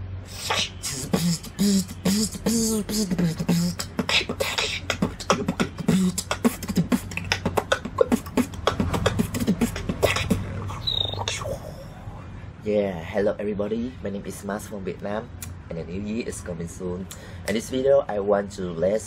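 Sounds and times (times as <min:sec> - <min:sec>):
beatboxing drums and clicks: 0:00.3 - 0:11.7.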